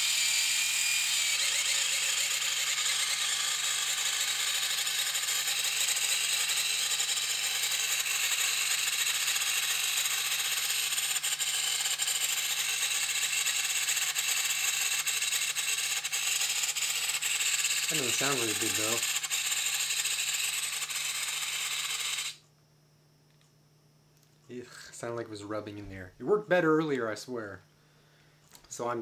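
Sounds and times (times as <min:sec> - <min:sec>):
servo motor whining: 0:00.0 - 0:22.4.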